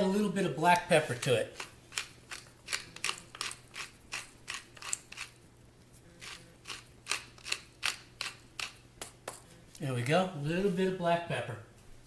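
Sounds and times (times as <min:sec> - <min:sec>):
pepper mill grinding: 0:00.7 - 0:05.5, 0:06.2 - 0:09.5.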